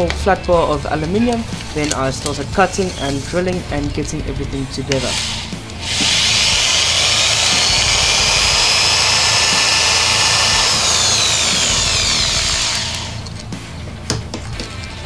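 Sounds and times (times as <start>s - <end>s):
electric drill whining through metal: 4.9s - 13.5s.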